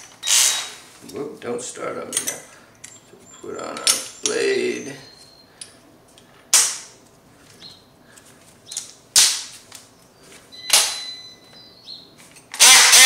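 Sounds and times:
multi-tool buzzing: 0.0 - 0.9, 12.5 - 13.0.

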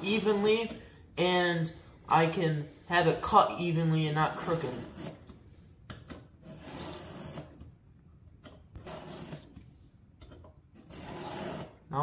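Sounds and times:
file rasping on chain teeth: 10.8 - 11.8.

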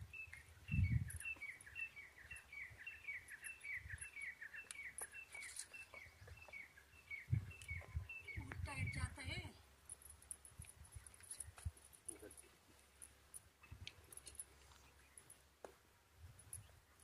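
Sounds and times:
small bird chirping: 0.0 - 15.5.

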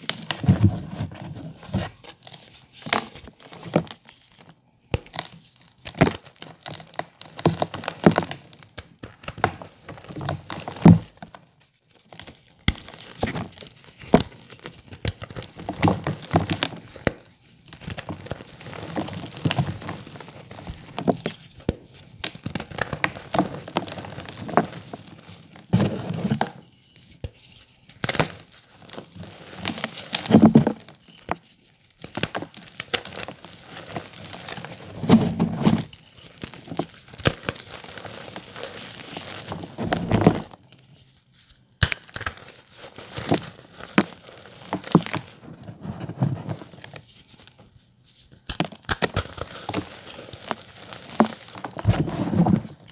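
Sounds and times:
chalk crunching and crumbling by hand: 12.0 - 45.4, 46.0 - 52.9.

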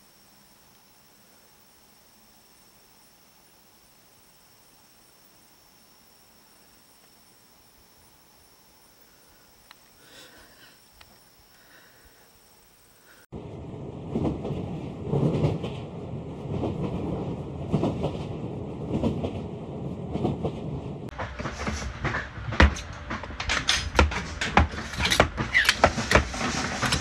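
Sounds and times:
train rumble inside carriage: 13.4 - 27.0.

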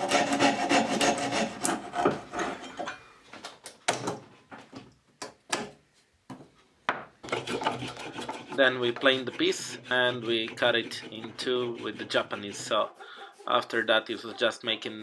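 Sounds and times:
coping saw rasping through wood: 0.0 - 2.6, 7.2 - 14.5.

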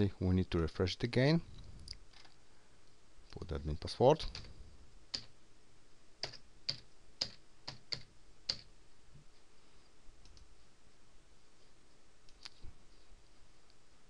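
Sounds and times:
faint clicks: 10.2 - 10.5.

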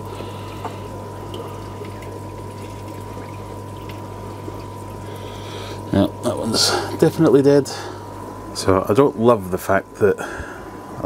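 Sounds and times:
water bubbling and trickling: 0.0 - 6.3
air pump humming: 0.0 - 11.0.

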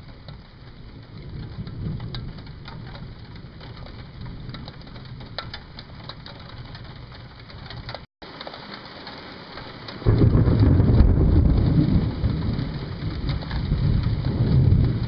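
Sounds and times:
distant thunder rumbling: 0.0 - 8.0, 9.9 - 15.0
raindrops ticking: 0.0 - 15.0.

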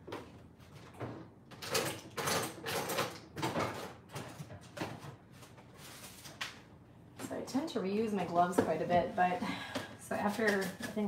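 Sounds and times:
rustling and scraping handling noises: 3.6 - 6.6, 10.1 - 11.0.

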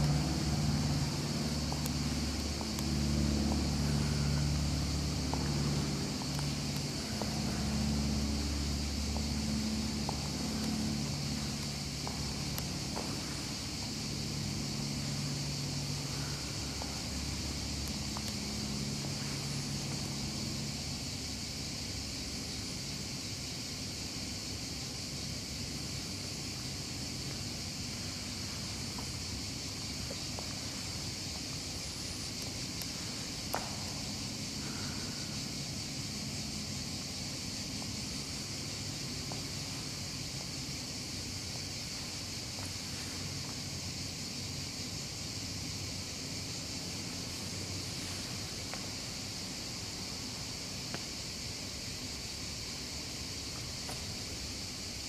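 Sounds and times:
low hum: 0.0 - 22.7
constant hiss: 0.0 - 55.0.

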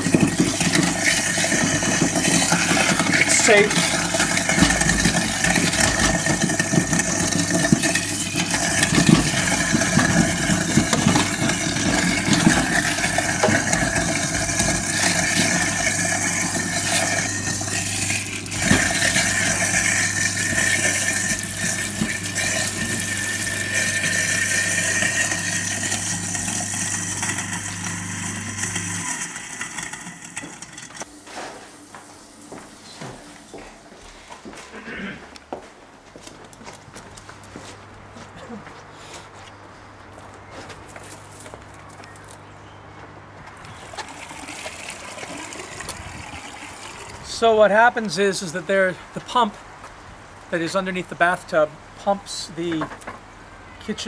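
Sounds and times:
tap water pouring: 0.0 - 31.1, 43.7 - 47.4
waste disposer grinding: 0.0 - 33.6, 43.6 - 48.7.

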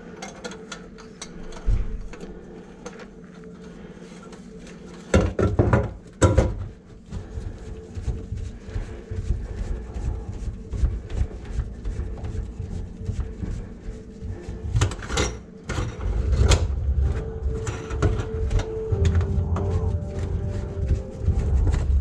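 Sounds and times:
drain-cleaning machine rumbling: 15.9 - 22.0.

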